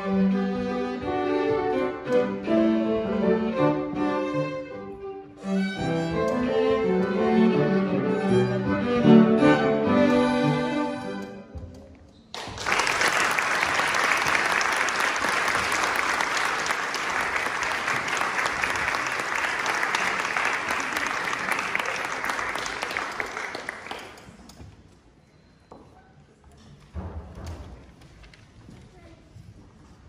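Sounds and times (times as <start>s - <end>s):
violin and cello chord: 0.0s - 11.4s
audience applause: 12.4s - 24.4s.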